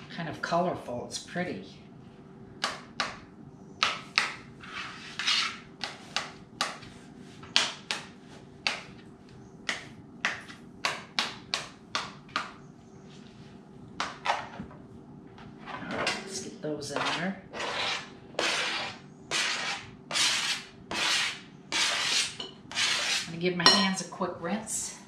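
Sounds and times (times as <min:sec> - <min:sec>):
knife chopping on plastic board: 0:02.6 - 0:03.2, 0:03.8 - 0:04.4, 0:05.8 - 0:06.9, 0:07.5 - 0:09.0, 0:09.6 - 0:12.6.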